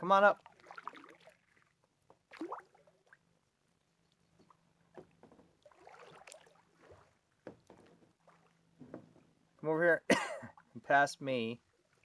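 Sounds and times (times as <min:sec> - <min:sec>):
faint water drips: 0:00.4 - 0:08.6.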